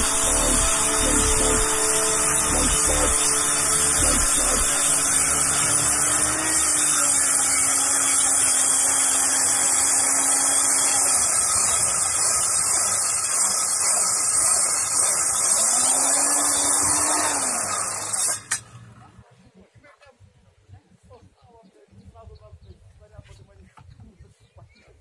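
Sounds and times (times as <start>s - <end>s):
angle grinder cutting concrete: 0.0s - 18.7s.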